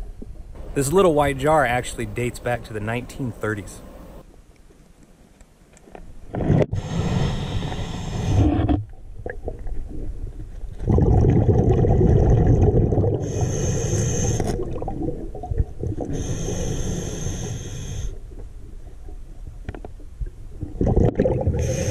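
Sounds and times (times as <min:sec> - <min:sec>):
gurgling exhaled bubbles: 0:08.2 - 0:17.4, 0:20.5 - 0:21.9.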